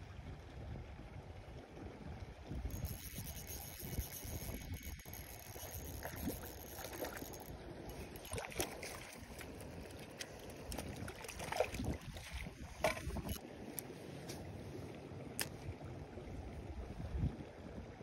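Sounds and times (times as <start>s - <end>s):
wind rumble on microphone: 0.0s - 7.4s, 8.3s - 13.4s, 15.7s - 18.0s
water sloshing and splashing: 2.5s - 16.6s
small clicks: 2.7s - 8.7s.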